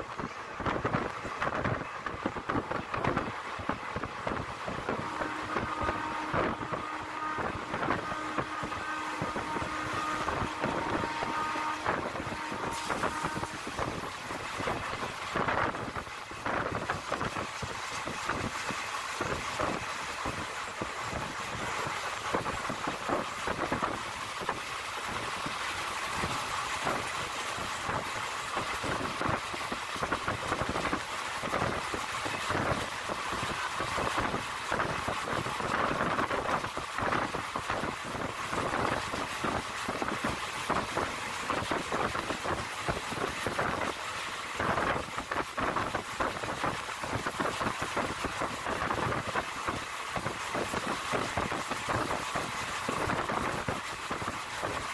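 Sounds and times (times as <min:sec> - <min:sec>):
train wheels rumbling on rails: 0:00.0 - 0:54.9.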